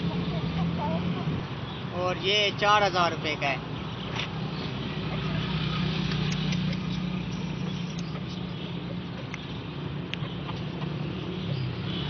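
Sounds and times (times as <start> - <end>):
light sharp clicks: 5.9 - 8.4, 9.2 - 9.5.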